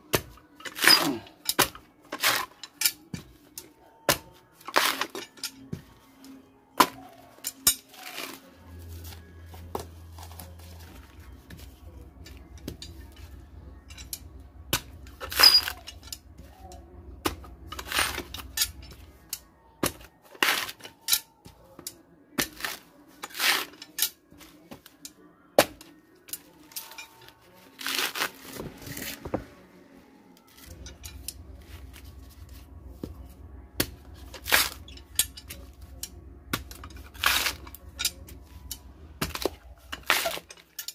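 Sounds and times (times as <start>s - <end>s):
husk fibre ripping: 7.9s - 8.6s, 22.4s - 23.8s, 27.7s - 29.2s, 34.3s - 34.8s, 37.0s - 37.8s, 39.3s - 40.5s
coconut husk cracking and snapping: 27.8s - 28.5s, 33.8s - 34.9s, 36.5s - 37.8s.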